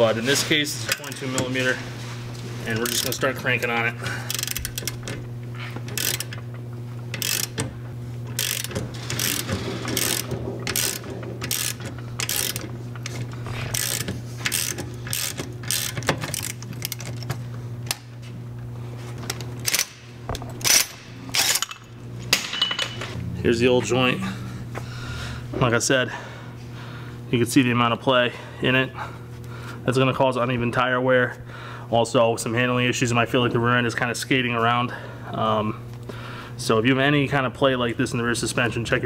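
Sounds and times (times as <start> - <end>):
ratchet wrench clicking: 2.8 - 3.3, 4.3 - 5.1, 5.9 - 6.4, 7.1 - 7.6, 8.3 - 12.7, 13.7 - 17.3
low hum: 3.9 - 27.6.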